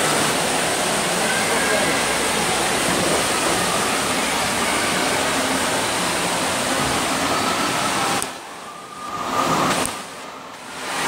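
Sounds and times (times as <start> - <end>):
water pouring into slide tube: 0.0 - 11.0.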